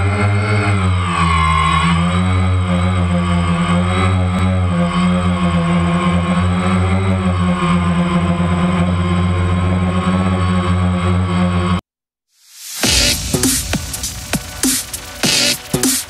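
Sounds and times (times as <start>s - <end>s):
drone propellers humming: 12.8s - 16.0s.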